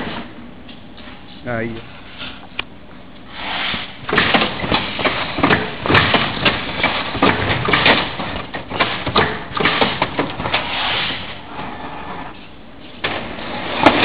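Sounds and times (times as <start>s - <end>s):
steady mechanical rumble: 0.0s - 14.0s
metal slats clattering: 4.1s - 11.3s.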